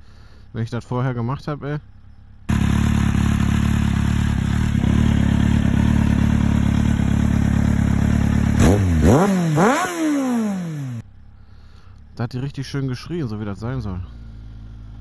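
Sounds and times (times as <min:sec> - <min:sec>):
motorcycle engine idling: 0:01.8 - 0:12.2, 0:14.0 - 0:15.0.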